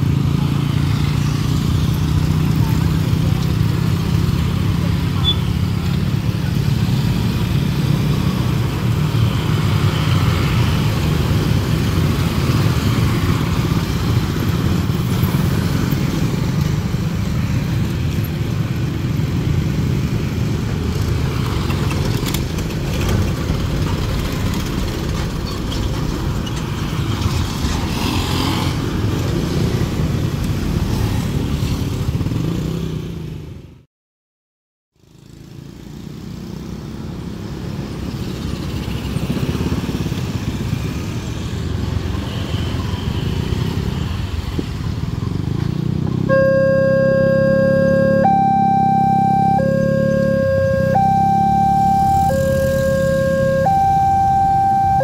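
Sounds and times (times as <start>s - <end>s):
vehicle engine: 0.0s - 31.5s, 45.4s - 55.0s
motorcycles running: 0.0s - 33.2s, 45.2s - 55.0s
road traffic: 0.0s - 33.9s, 35.0s - 55.0s.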